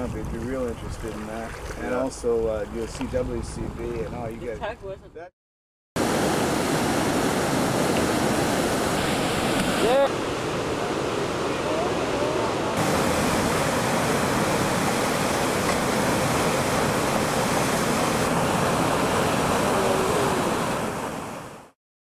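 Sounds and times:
fast water rushing: 0:06.0 - 0:21.8.

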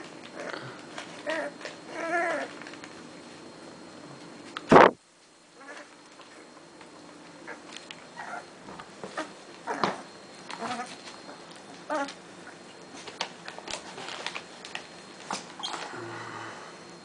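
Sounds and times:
puppies yipping and whimpering: 0:07.4 - 0:08.5, 0:10.6 - 0:12.1.

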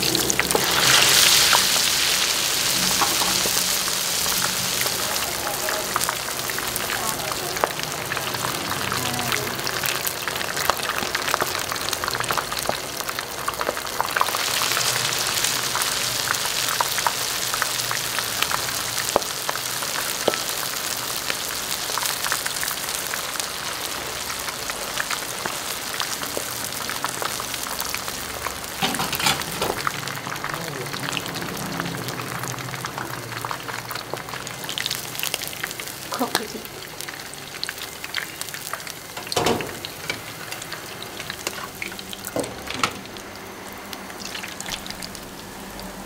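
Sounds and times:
hot oil sizzling and popping: 0:00.0 - 0:46.0
spatula scraping a pan: 0:28.8 - 0:29.8.

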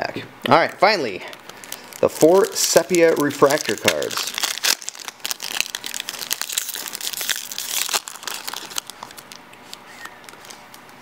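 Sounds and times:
foil wrapper tearing and crinkling: 0:01.4 - 0:09.5.

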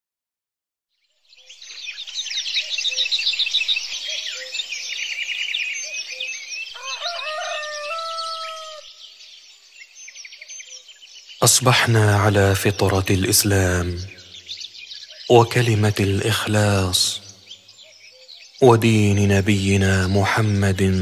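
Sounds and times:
songbirds chirping: 0:00.9 - 0:21.0
rooster crowing: 0:06.7 - 0:09.0.

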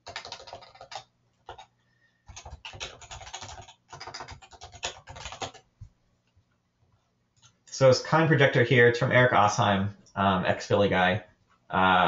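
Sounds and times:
fast keyboard typing: 0:00.0 - 0:05.7.

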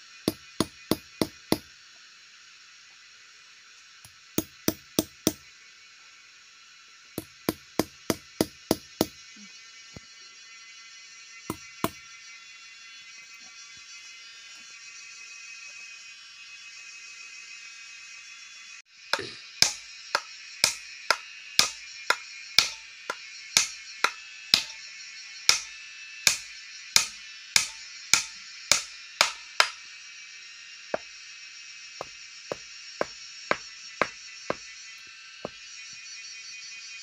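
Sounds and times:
hammer driving nail into wood: 0:07.2 - 0:09.2, 0:19.6 - 0:24.7, 0:27.0 - 0:29.8.

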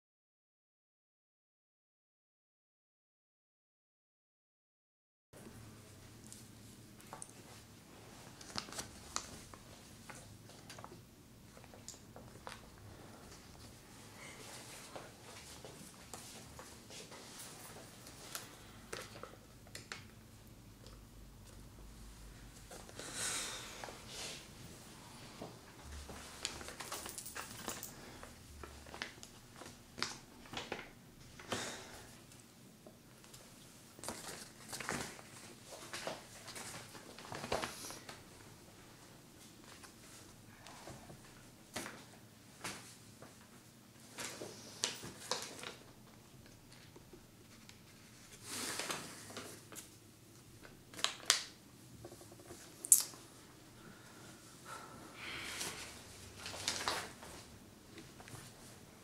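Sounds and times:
paper rustling and crinkling: 0:08.2 - 0:20.0, 0:25.8 - 0:31.0, 0:34.0 - 0:38.3, 0:44.0 - 0:50.0, 0:50.6 - 0:52.8, 0:55.6 - 0:58.8.

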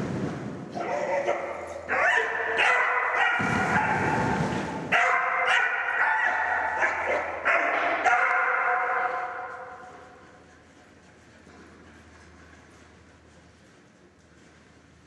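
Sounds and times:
low rumbling noise: 0:00.0 - 0:01.9, 0:03.4 - 0:05.0
dog barking and yelping: 0:00.8 - 0:04.0, 0:04.9 - 0:09.4.

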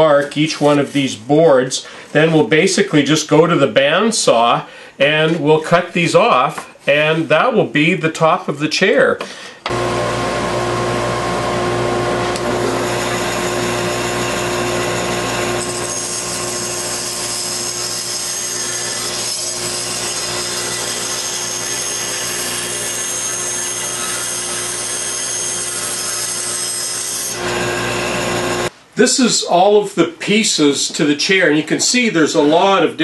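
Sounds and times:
bandsaw motor hum: 0:09.7 - 0:28.7
bandsaw blade cutting wood: 0:11.0 - 0:28.7.

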